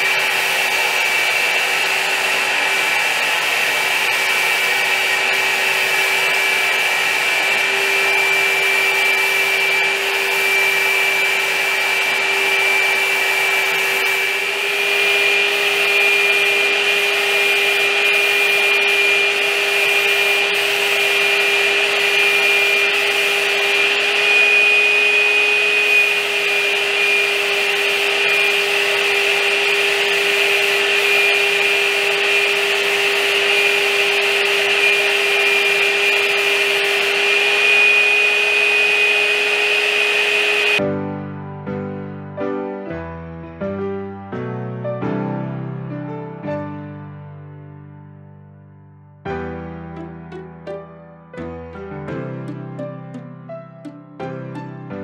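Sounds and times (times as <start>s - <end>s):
steady high whine: 0.0s - 40.8s.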